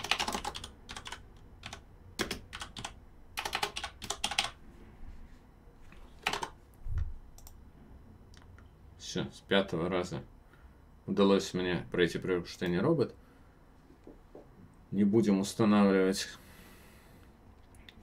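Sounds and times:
typing on computer keyboard: 0:00.0 - 0:04.6, 0:06.2 - 0:06.6.

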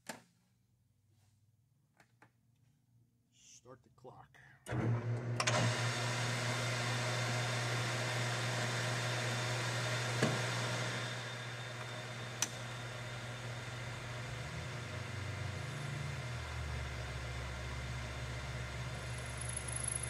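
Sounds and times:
metal lathe running: 0:04.8 - 0:20.0.

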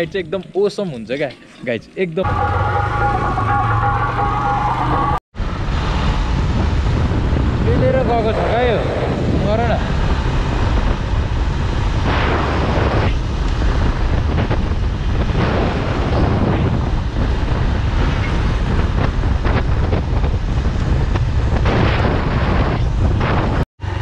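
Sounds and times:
motorcycle engine and road rumble: 0:02.2 - 0:24.0
wind buffeting microphone: 0:05.4 - 0:24.0.

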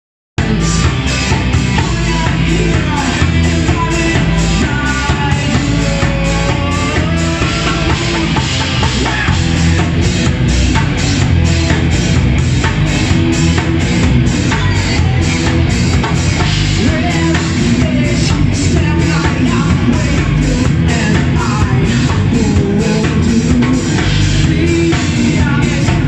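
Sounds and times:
drum kit: 0:00.4 - 0:26.0
electric guitars: 0:00.4 - 0:26.0
woman singing: 0:14.3 - 0:15.6.

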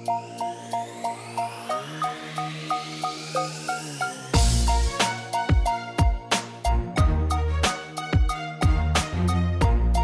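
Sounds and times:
rising synth sweep: 0:00.0 - 0:05.9
electronic synth music: 0:00.0 - 0:10.0.

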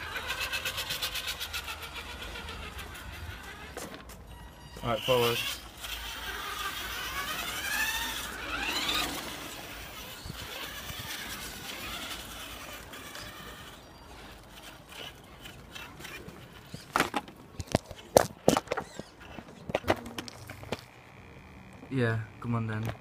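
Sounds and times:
tyres rolling on rough ground: 0:00.0 - 0:21.0
toy truck electric motor whining: 0:00.0 - 0:23.0.

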